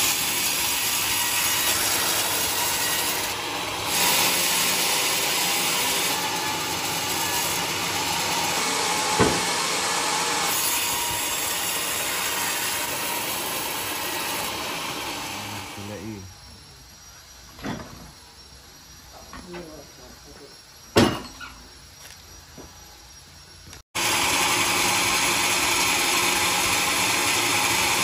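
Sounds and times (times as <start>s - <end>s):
band saw cutting log: 0.0s - 16.2s, 24.0s - 28.0s
sharp knock: 9.2s - 9.5s.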